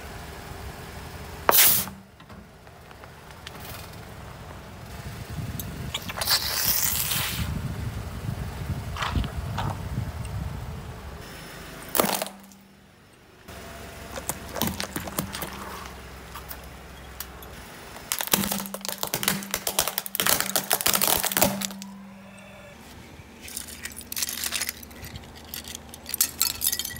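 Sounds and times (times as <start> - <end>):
car low hum: 0.0 - 26.9
tyre crushing brittle objects: 11.9 - 12.6, 14.1 - 16.8, 17.9 - 22.0, 23.4 - 26.9
shards crunching and clicking: 11.9 - 12.7, 14.1 - 22.0, 23.4 - 26.9.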